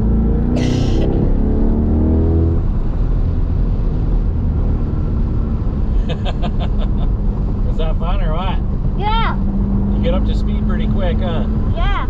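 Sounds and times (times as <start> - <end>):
wind and road noise: 0.0 - 12.0
low engine rumble: 2.4 - 12.0.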